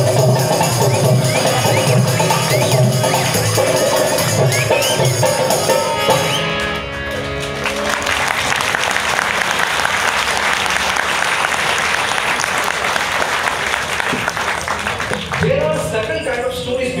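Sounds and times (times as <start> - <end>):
music: 0.0 - 10.6
audience applause: 5.9 - 16.4.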